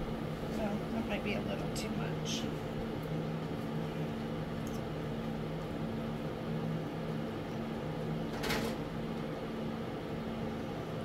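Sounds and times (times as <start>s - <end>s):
appliance humming: 0.0s - 11.0s.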